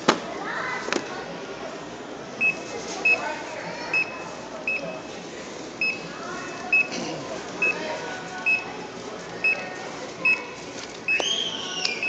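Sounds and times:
barcode scanner beeping: 2.4s - 3.3s, 3.9s - 5.1s, 6.7s - 6.9s, 8.4s - 8.7s, 9.4s - 10.5s.

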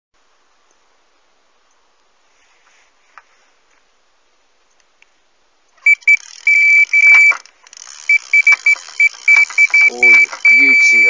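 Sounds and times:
bite alarm beeping: 5.8s - 7.4s, 8.0s - 11.0s.

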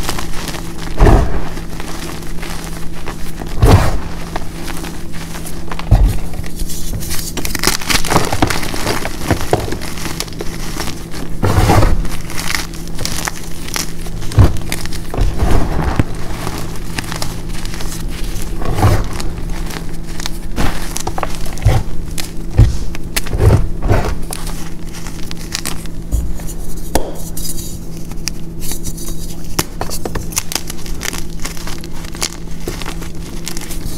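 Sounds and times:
chalk crunching and crackling: 0.0s - 33.9s
dull thumps into powder: 0.9s - 1.8s, 3.5s - 4.5s, 5.8s - 6.4s, 14.2s - 17.0s, 20.5s - 24.4s, 26.1s - 27.3s.

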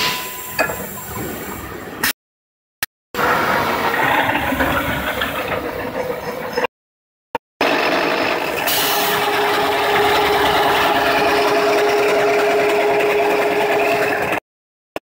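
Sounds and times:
drilling machine running: 7.6s - 14.4s.

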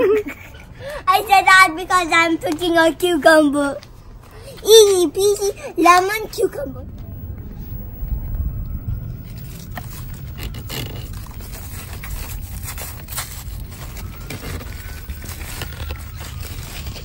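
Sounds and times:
leaves rustling and scraping: 1.2s - 17.0s
low rumble: 5.6s - 17.0s.

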